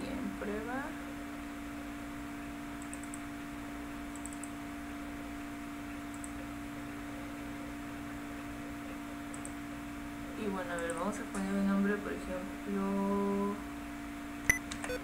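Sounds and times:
electrical hum and hiss: 0.0s - 15.0s
computer mouse clicks: 2.8s - 3.2s, 4.1s - 4.6s, 6.1s - 6.4s, 9.3s - 9.6s, 10.7s - 11.6s.

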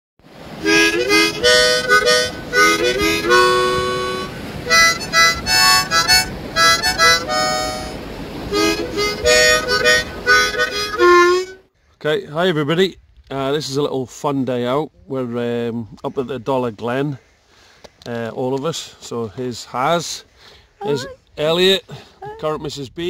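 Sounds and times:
harmonica music: 0.6s - 11.7s, 20.8s - 21.2s.

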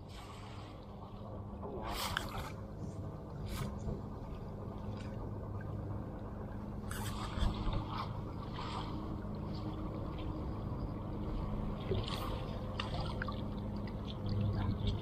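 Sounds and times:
low motor hum: 0.0s - 15.0s
water splashing and dripping: 11.2s - 15.0s.

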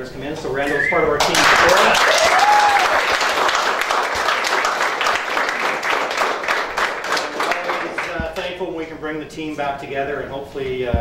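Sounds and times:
small crowd applauding: 1.2s - 8.5s.

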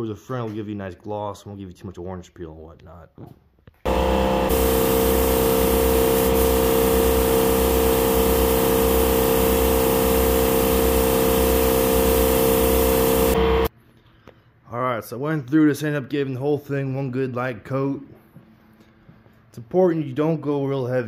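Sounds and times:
air compressor humming: 3.9s - 13.7s
spray gun air hiss: 4.2s - 13.4s.

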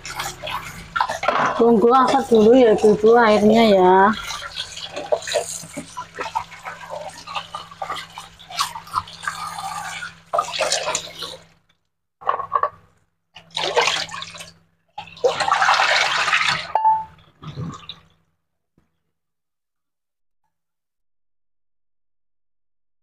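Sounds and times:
water running and splashing: 0.0s - 11.6s, 13.4s - 16.8s.

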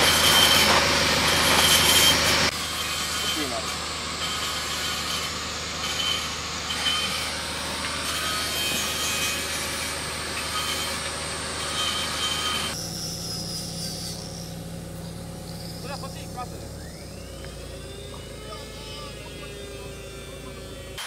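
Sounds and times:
wood being sawn: 0.0s - 21.0s.

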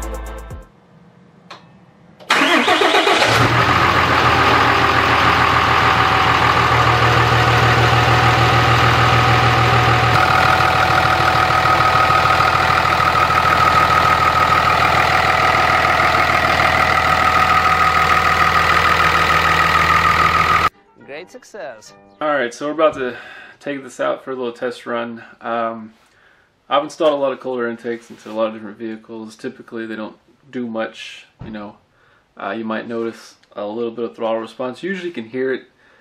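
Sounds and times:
diesel engine starting and idling: 2.1s - 20.7s.

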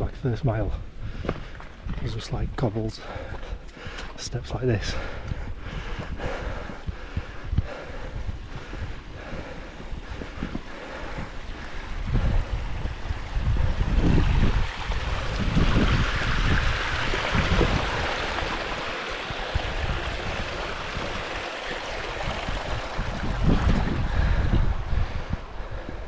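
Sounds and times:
wind buffeting microphone: 0.0s - 26.0s
stream trickling over rocks: 11.4s - 24.0s.

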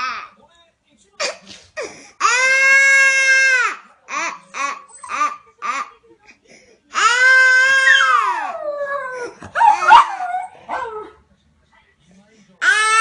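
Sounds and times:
toddler crying: 0.0s - 0.4s, 2.2s - 5.9s, 6.9s - 10.9s, 12.6s - 13.0s
dog howling: 7.0s - 11.2s.

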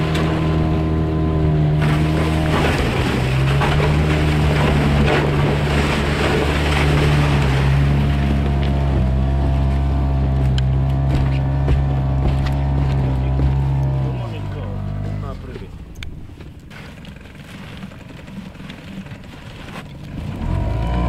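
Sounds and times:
boat hull grinding through ice: 0.0s - 21.0s
outboard motor running: 0.0s - 21.0s
ice knocking on hull: 1.8s - 14.1s.

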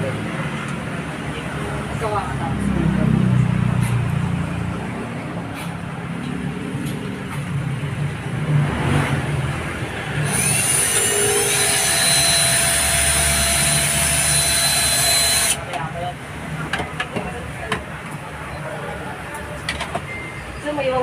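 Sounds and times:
cordless drill whining: 10.2s - 15.6s.

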